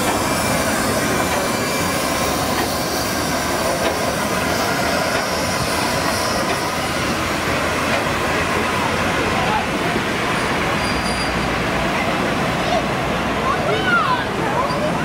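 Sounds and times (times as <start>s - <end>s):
wheels clicking on rails: 0.0s - 11.8s
steam locomotive hiss and rumble: 0.0s - 15.0s.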